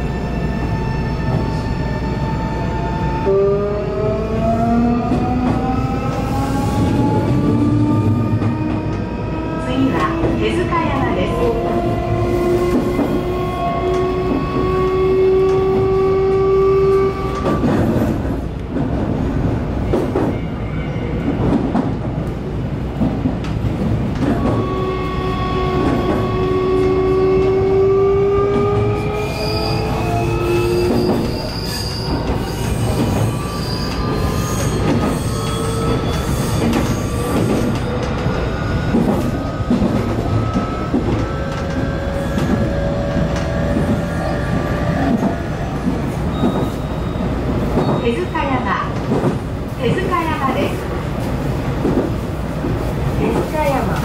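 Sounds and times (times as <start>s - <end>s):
electric train rumble: 0.0s - 54.0s
rail clicks: 5.0s - 20.4s, 21.3s - 24.7s, 30.6s - 54.0s.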